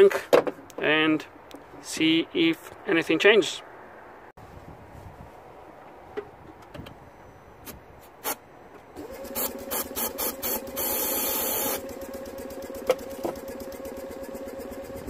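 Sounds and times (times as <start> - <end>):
engine cranking on starter: 9.0 - 15.0.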